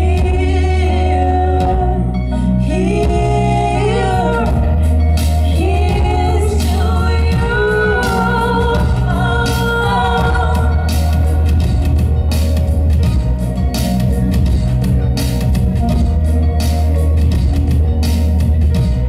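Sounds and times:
bass line: 0.0 - 19.0
women singing together: 2.6 - 4.9, 5.5 - 10.9.

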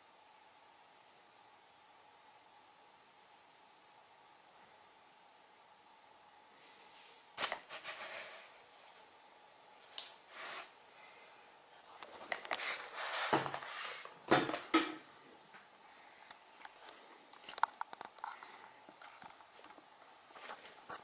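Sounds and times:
rustling: 11.7 - 14.3, 16.2 - 21.0.

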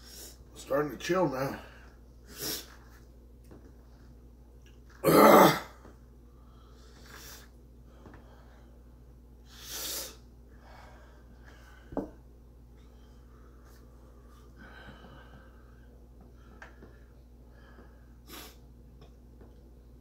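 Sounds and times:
man grunting: 5.0 - 5.8
man breathing hard: 9.5 - 12.1, 13.2 - 18.6.

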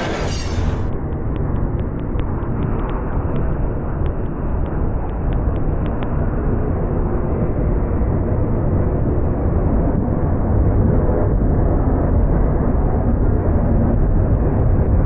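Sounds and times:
freight train wheels rumbling: 0.0 - 0.9
sharp clicks: 0.0 - 6.2.

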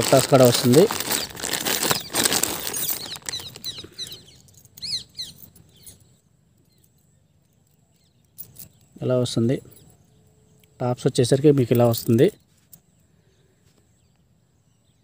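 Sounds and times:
plastic bags rustling: 0.0 - 4.6
jewellery jangling: 0.0 - 9.0.

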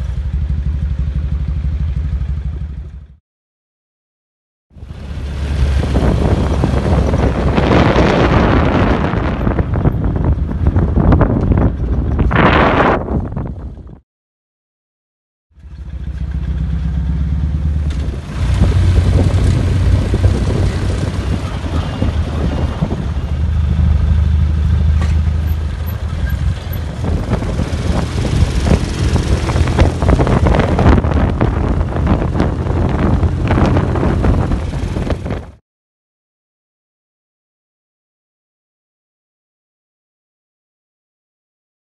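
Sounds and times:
motorcycle engine running: 0.0 - 3.2, 4.8 - 14.0, 15.6 - 35.6
wind rushing over microphone: 4.8 - 14.0, 17.8 - 35.6.

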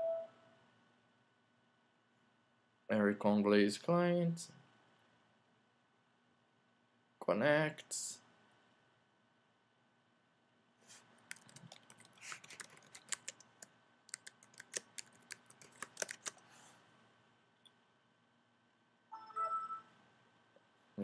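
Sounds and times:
keyboard key clicks: 14.1 - 16.4.

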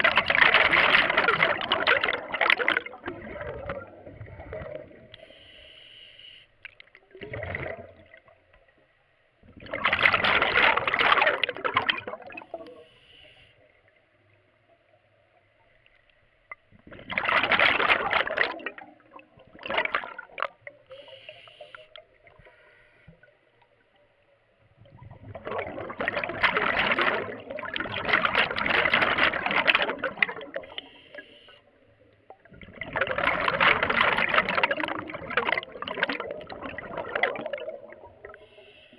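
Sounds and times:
exhaled bubbles rushing: 0.0 - 5.2, 6.8 - 8.4, 9.4 - 12.8, 16.5 - 20.9, 24.7 - 31.0, 32.0 - 38.6
faint steady whine: 5.0 - 6.8.

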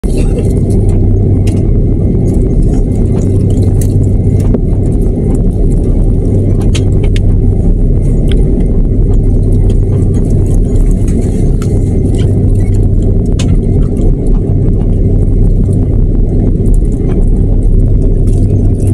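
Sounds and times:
airliner cabin rumble: 0.0 - 18.9
steady hum: 0.0 - 18.9.

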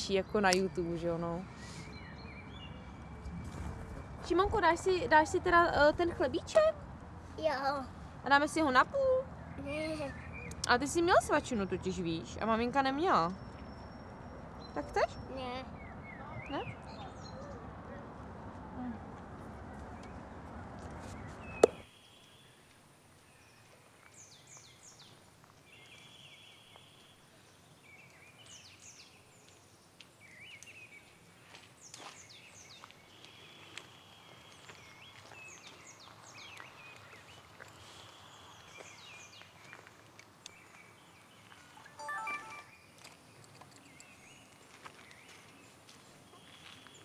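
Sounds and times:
noisy outdoor background: 0.0 - 47.0
faint steady high tone: 41.8 - 42.9.

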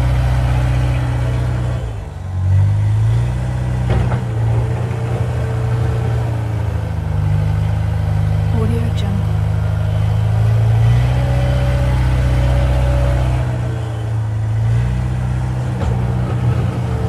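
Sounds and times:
tractor engine chugging: 4.4 - 17.0.

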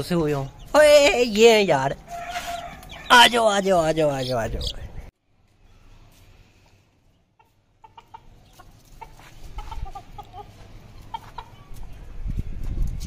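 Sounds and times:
chickens clucking: 7.3 - 12.0.

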